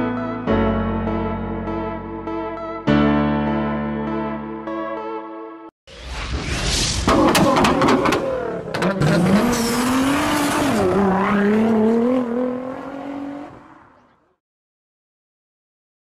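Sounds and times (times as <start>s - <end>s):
car engine revving hard: 7.8s - 13.8s.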